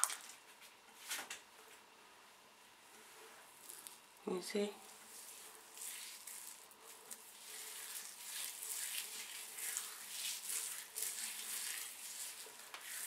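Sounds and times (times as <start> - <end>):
wet gel squishing in hair: 3.6 - 4.1, 4.8 - 13.0.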